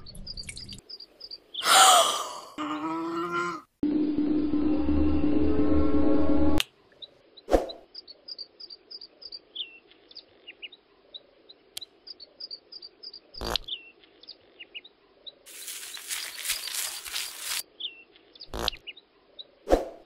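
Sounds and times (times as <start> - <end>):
small birds chirping: 0.0 - 2.0, 6.8 - 19.7.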